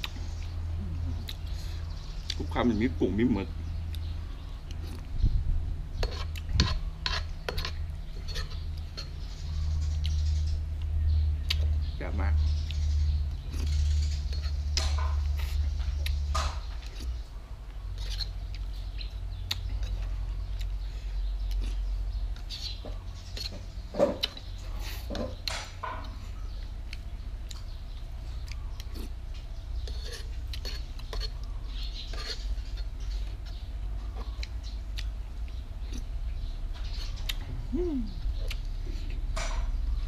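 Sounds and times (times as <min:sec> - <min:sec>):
spoon scraping frying pan: 0:06.0 - 0:09.3, 0:29.8 - 0:32.8.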